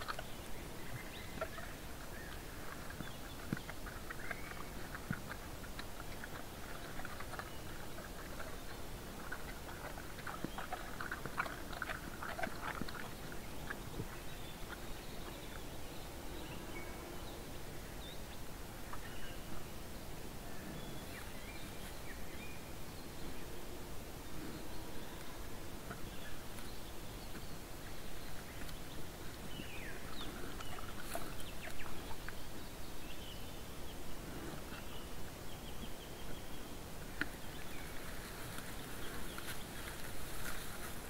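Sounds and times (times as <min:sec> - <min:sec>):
steady background hiss: 0:00.0 - 0:41.0
bear crunching dry grass: 0:01.2 - 0:15.7, 0:28.3 - 0:32.4, 0:37.0 - 0:41.0.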